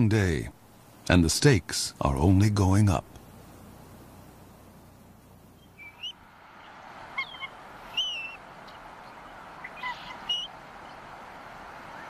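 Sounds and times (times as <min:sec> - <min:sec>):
steady hiss: 0:00.0 - 0:12.0
eagle squeaky calls: 0:05.6 - 0:11.1.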